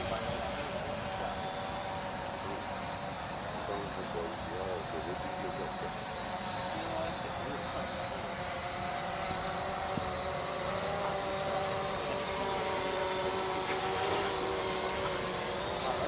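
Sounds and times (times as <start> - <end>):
drone propellers whining: 0.0 - 16.0.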